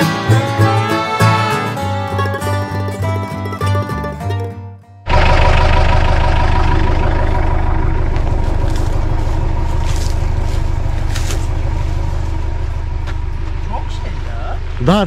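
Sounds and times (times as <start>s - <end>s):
road noise: 0.0s - 4.2s, 5.0s - 15.0s
vehicle engine running: 5.0s - 15.0s
rattling: 5.1s - 14.0s.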